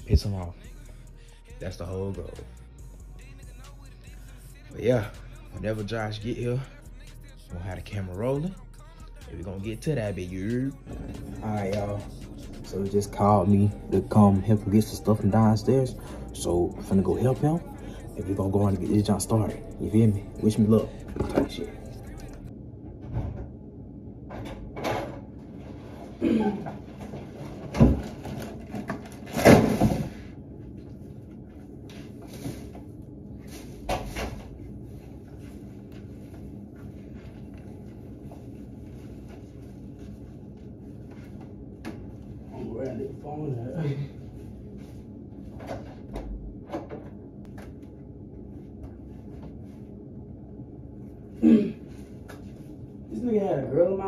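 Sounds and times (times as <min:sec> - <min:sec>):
objects clattering: 0:24.3 - 0:30.3.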